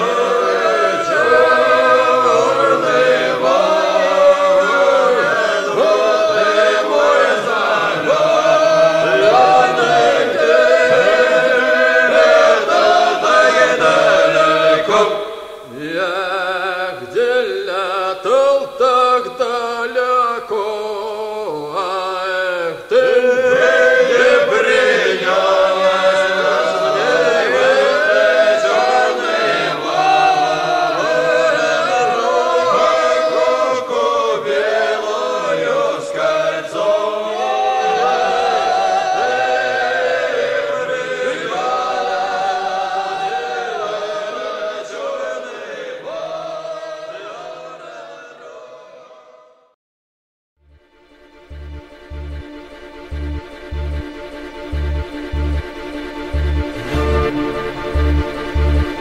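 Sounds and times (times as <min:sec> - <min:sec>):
choir singing: 0:00.0 - 0:49.8, 0:51.4 - 0:59.0.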